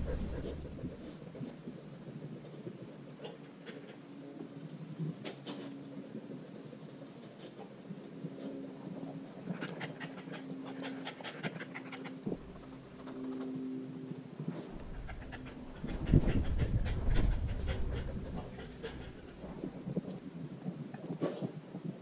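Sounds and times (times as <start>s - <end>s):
puppy panting: 0.0s - 1.2s, 3.2s - 4.1s, 9.4s - 12.8s, 14.7s - 19.8s.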